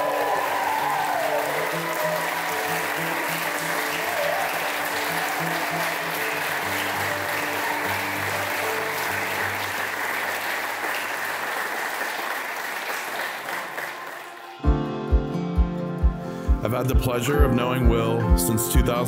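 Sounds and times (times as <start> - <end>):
guests applauding: 0.0 - 14.9.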